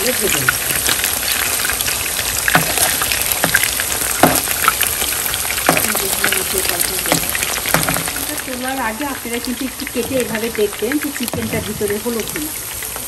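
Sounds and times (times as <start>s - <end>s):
chicken sizzling in hot oil: 0.0s - 13.0s
metal spoon knocking on pan: 2.5s - 4.5s, 5.6s - 6.4s, 7.0s - 8.2s.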